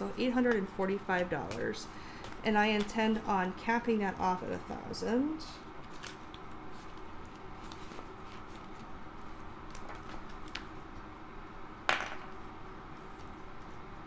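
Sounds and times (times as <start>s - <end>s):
paper and plastic rustling: 5.8s - 10.8s
plastic crackle: 5.8s - 10.8s.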